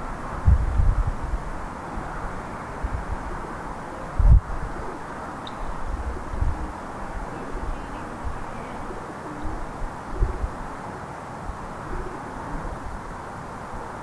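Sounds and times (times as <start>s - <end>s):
low street rumble: 0.0s - 14.0s
faint bird calls: 2.1s - 13.0s.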